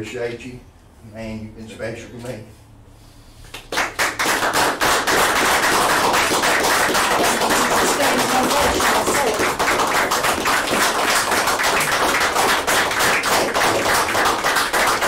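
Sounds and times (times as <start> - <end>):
crowd applauding: 3.6 - 15.0.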